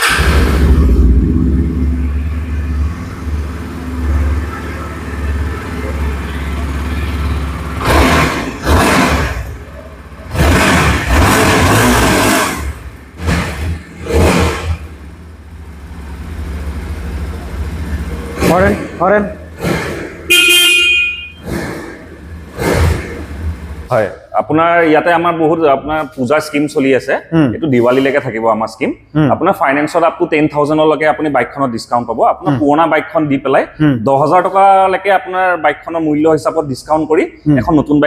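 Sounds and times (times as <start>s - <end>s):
motorcycle engine idling and revving: 0.0s - 26.8s.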